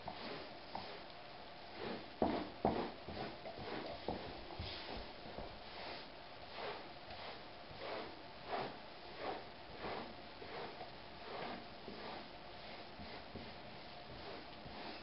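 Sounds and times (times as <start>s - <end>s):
hair remover scraping swish: 6.5s - 12.3s.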